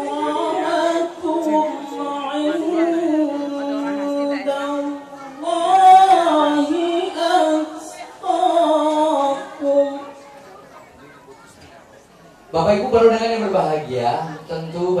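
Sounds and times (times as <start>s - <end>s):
man chanting devotional song: 0.0s - 10.4s.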